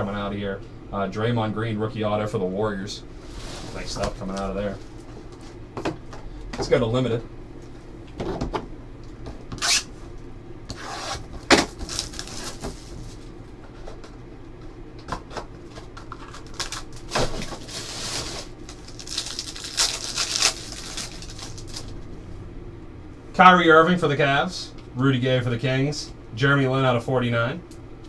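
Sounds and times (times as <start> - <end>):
foil wrapper crinkling: 11.5 - 13.3, 16.0 - 22.0.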